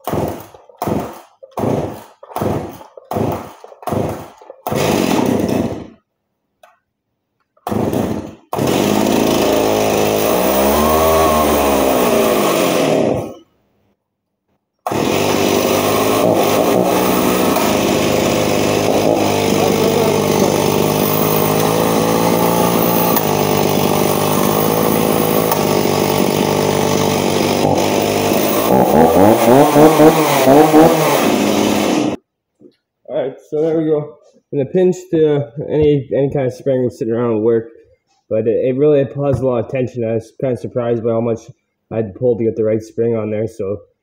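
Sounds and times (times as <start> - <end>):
chainsaw engine running: 0.0 - 6.0, 7.7 - 13.4, 14.9 - 32.2
chainsaw starter cord pulls: 0.0 - 6.0, 7.6 - 13.4, 14.8 - 32.2.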